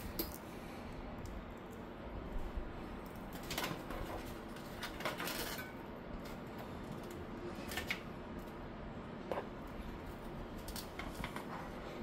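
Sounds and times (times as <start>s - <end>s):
computer parts clattering: 3.2s - 8.1s.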